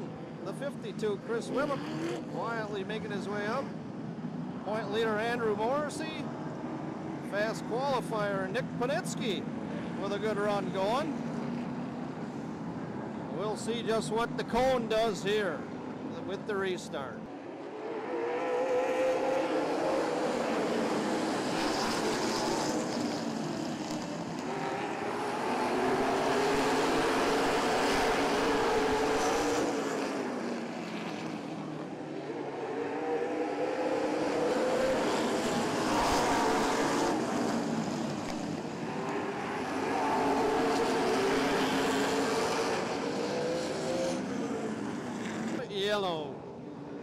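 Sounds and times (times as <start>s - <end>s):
race car engines passing: 0.0s - 47.0s.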